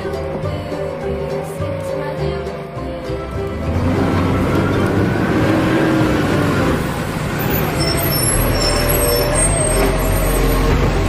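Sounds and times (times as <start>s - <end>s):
truck engine rumbling: 0.0s - 11.0s.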